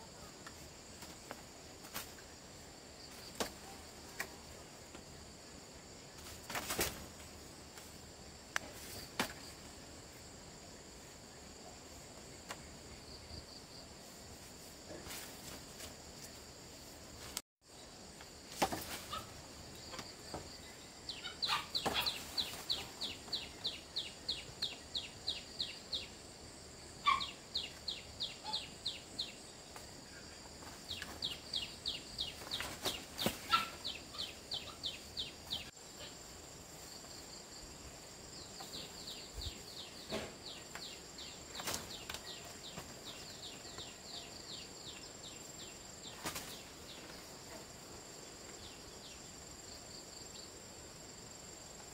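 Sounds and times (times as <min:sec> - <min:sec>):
high insect drone: 0:00.0 - 0:51.9
bird chirping: 0:19.8 - 0:26.2, 0:27.0 - 0:36.2.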